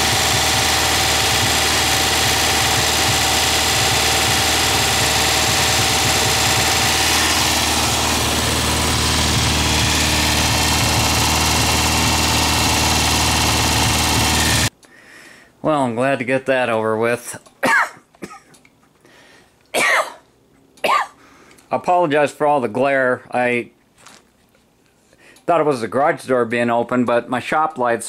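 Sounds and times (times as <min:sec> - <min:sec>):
flat-four engine running: 0:00.0 - 0:14.7.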